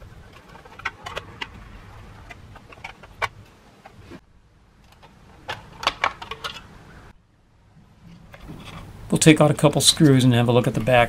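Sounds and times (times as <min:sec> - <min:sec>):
plastic parts clicking and rattling: 0:00.0 - 0:04.0, 0:04.8 - 0:06.8.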